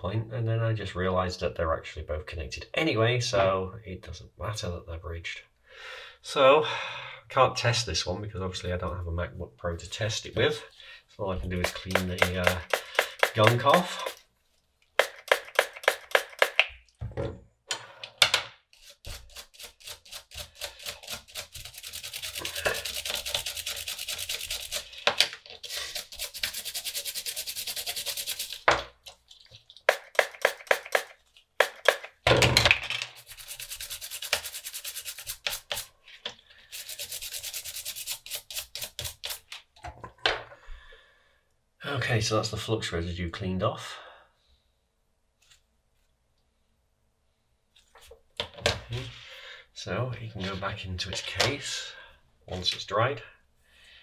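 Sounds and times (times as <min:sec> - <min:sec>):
brush scrubbing circuit board: 0:11.6 - 0:14.2, 0:15.0 - 0:16.6, 0:18.8 - 0:25.0, 0:25.6 - 0:28.7, 0:29.8 - 0:32.1, 0:33.2 - 0:35.9, 0:36.7 - 0:39.5.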